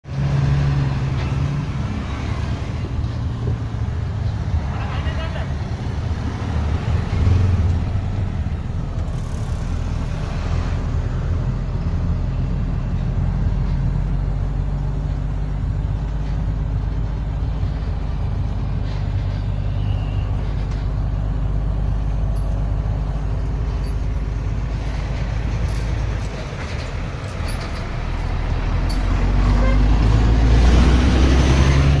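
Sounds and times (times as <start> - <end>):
vehicle engine and road noise: 0.0 - 32.0.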